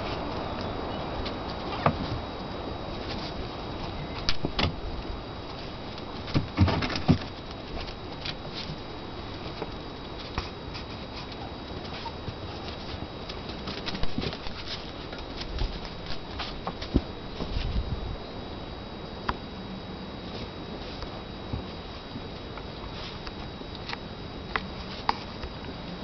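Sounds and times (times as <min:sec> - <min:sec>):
pets scuffling on tiled floor: 0:05.5 - 0:17.8.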